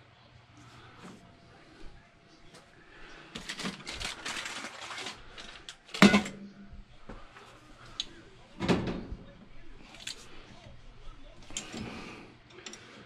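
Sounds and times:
tools and hoses rustling: 0:09.7 - 0:13.0.

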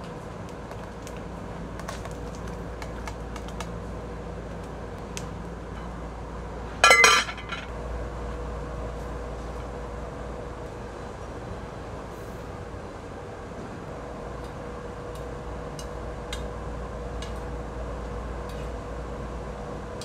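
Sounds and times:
metal pot clank: 0:06.8 - 0:07.7.

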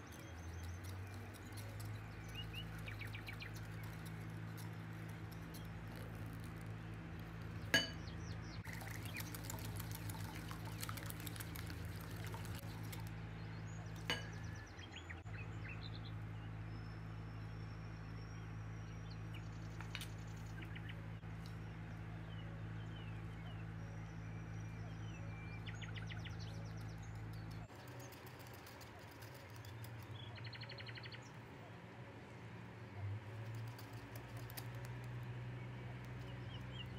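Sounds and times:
liquid pouring: 0:08.6 - 0:13.1.

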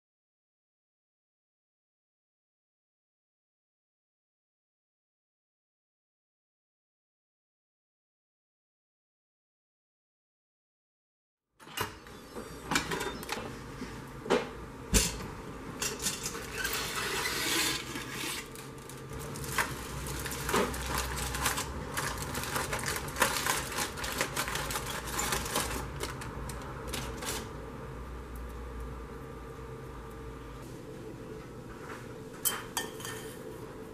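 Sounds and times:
aluminium foil crinkling: 0:17.8 - 0:27.6.

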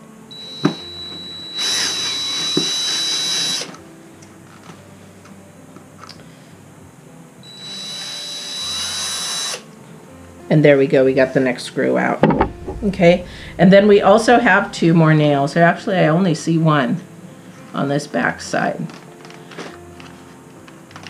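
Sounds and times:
power drill whining: 0:00.3 - 0:03.8, 0:07.4 - 0:09.7
sharp knock: 0:12.2 - 0:15.0.

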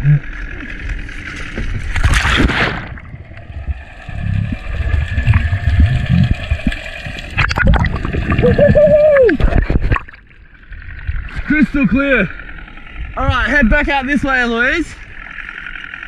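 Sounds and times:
underwater bubbling and rumbling: 0:00.0 - 0:16.0
water sloshing and knocks: 0:01.3 - 0:03.1, 0:09.3 - 0:10.3
loud splash into water: 0:01.9 - 0:03.2.

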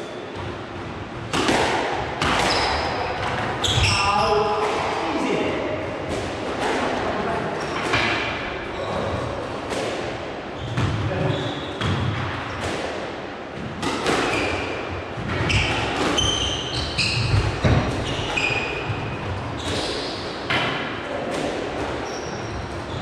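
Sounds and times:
squash ball hits: 0:01.2 - 0:05.4, 0:09.6 - 0:22.0
shoes squeaking on court: 0:02.3 - 0:04.4, 0:15.4 - 0:20.3, 0:22.0 - 0:23.0.

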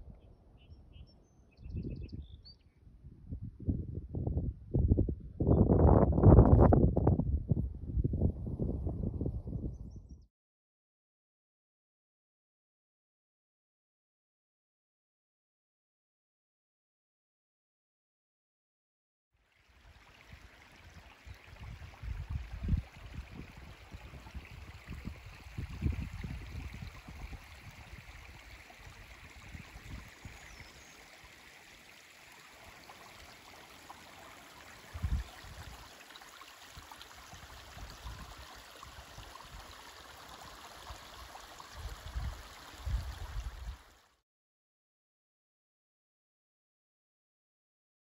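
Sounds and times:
brook trickling over stones: 0:19.4 - 0:44.1.

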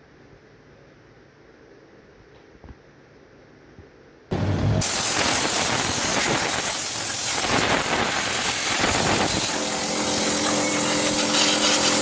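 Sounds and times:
spray gun hissing: 0:04.8 - 0:12.0.

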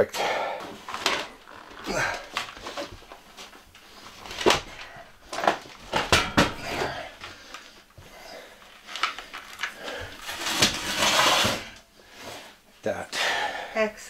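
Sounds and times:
scraping and shuffling: 0:00.6 - 0:12.6
battery knocking and clunking: 0:04.3 - 0:07.0.

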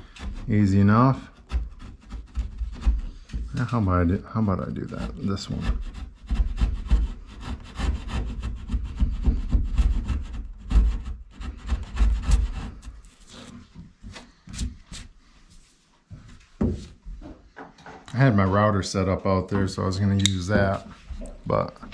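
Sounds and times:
chisel scraping wood: 0:00.0 - 0:15.2, 0:20.1 - 0:21.9.

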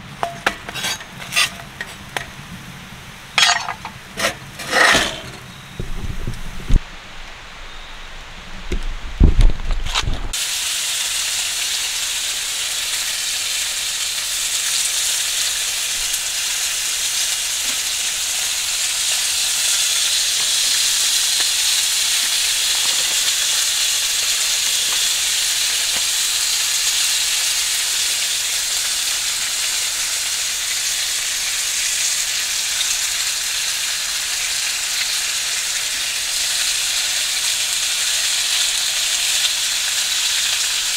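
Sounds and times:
bacon sizzling in a skillet: 0:10.2 - 0:40.9.

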